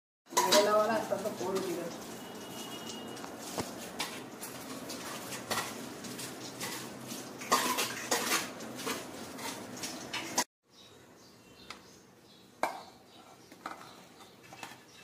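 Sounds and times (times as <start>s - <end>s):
steel bowl clinking and knocking: 0.3s - 3.3s, 7.4s - 10.4s
water splashing: 0.4s - 10.0s.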